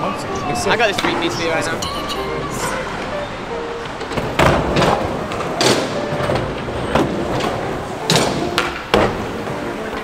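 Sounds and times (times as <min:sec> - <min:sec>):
skateboard wheels rolling: 0:02.7 - 0:10.0
skateboard clacking and landing: 0:03.8 - 0:10.0.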